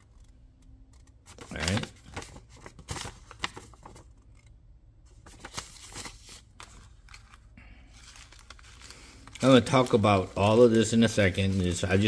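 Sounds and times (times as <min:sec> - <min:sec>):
paper and plastic rustling: 0:00.9 - 0:04.5, 0:05.1 - 0:12.0.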